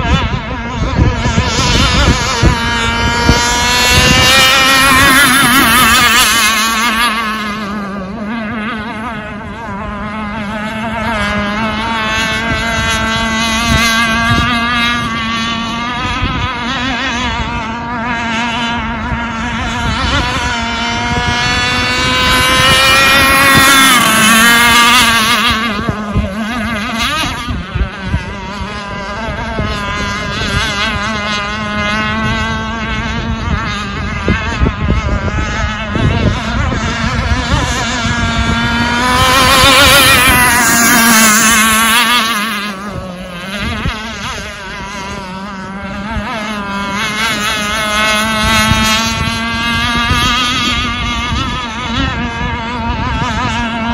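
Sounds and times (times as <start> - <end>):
rc boat motor running: 0.0 - 53.9.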